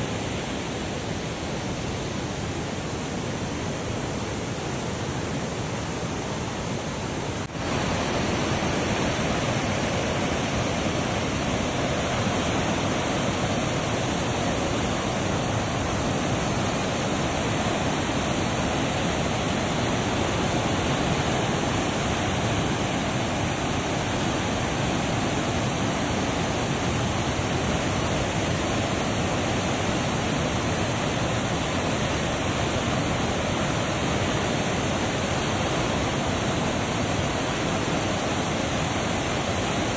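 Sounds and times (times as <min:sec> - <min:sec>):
water rushing through spillway: 0:00.0 - 0:39.9.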